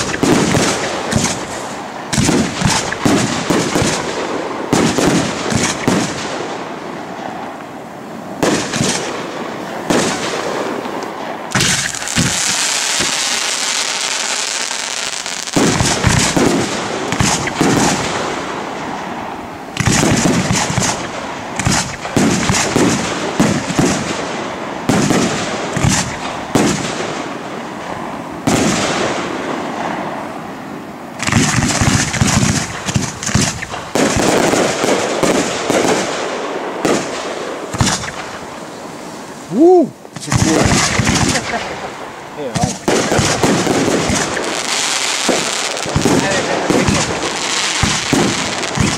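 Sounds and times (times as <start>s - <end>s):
firework shells bursting: 0.0s - 6.2s, 9.9s - 18.8s, 19.7s - 24.1s, 31.2s - 48.9s
fireworks hissing: 11.5s - 18.2s, 37.7s - 48.9s.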